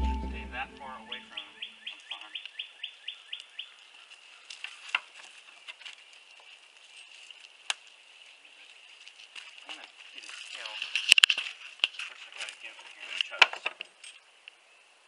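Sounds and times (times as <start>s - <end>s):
steady high drone: 0.0s - 1.2s
songbird chirping: 0.0s - 4.4s.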